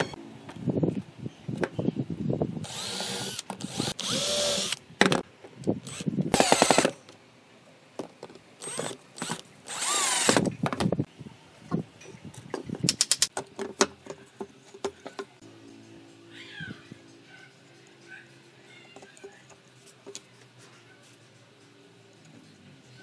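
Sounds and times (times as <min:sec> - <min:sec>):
cordless drill motor whining: 0:02.6 - 0:04.8, 0:05.9 - 0:06.9, 0:08.6 - 0:10.5
drill clicks: 0:02.7 - 0:04.8, 0:05.9 - 0:06.9, 0:08.6 - 0:10.5.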